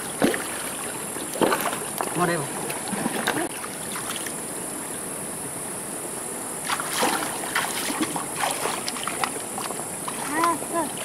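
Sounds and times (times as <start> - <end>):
splashes of wading in water: 0.0 - 4.3, 6.6 - 11.0
stream running over stones: 0.0 - 4.8, 6.6 - 11.0
river stones knocking: 1.3 - 2.2.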